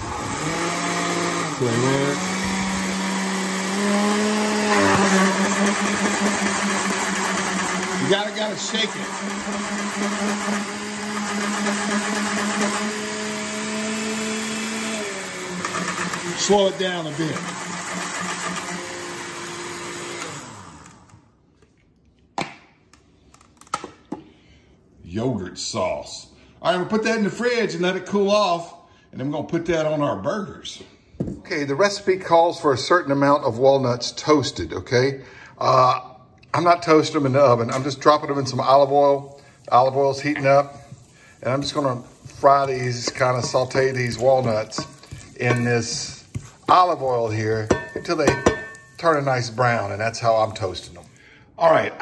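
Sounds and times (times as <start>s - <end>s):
blender motor running: 0.0s - 21.3s, 38.1s - 51.0s
glass jar clunks: 47.7s - 48.9s.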